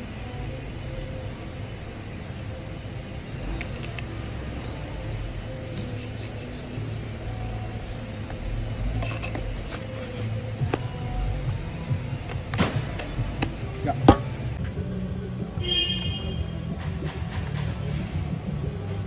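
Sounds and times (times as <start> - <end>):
steady low hum: 0.0 - 19.0
gloved hands rubbing a rag: 5.0 - 11.4.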